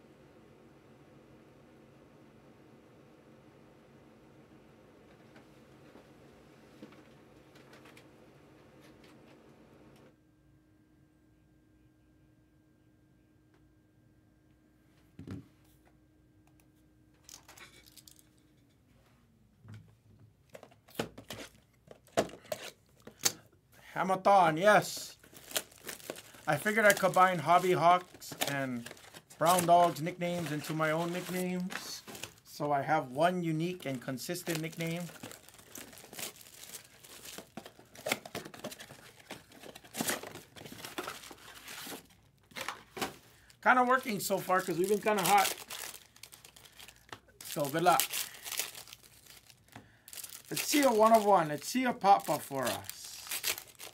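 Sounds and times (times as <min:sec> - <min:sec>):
foil wrappers crinkling: 0:17.2 - 0:18.3, 0:24.4 - 0:53.9.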